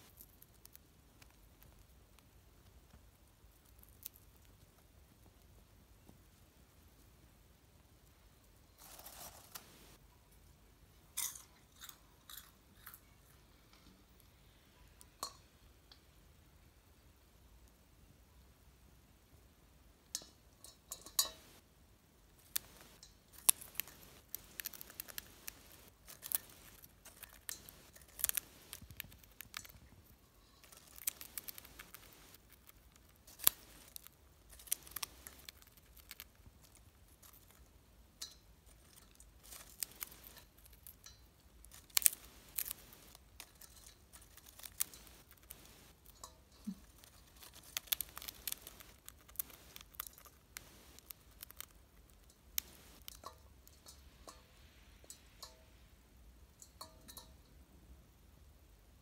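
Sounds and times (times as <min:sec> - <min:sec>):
bird crunching popcorn: 0:00.0 - 0:05.2, 0:08.8 - 0:10.0, 0:22.4 - 0:54.4.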